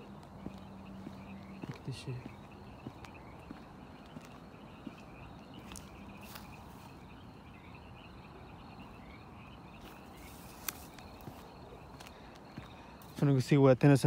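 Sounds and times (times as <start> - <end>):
frogs calling: 0.0 - 14.0.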